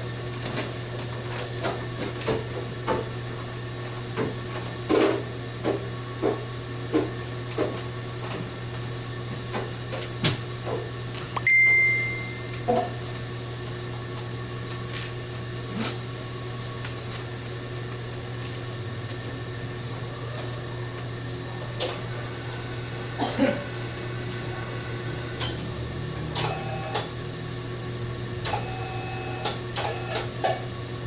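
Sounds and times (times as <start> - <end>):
printing press humming: 0.0 - 31.0
short high beep: 11.4 - 12.5.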